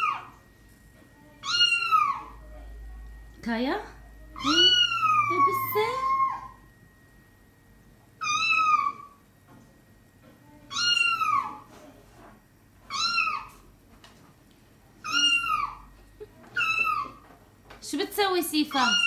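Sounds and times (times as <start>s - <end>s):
kitten meowing on television: 1.4s - 2.3s, 4.4s - 6.6s, 8.2s - 9.2s, 10.7s - 11.6s, 12.9s - 13.6s, 15.0s - 15.8s, 16.6s - 17.2s, 18.7s - 19.0s.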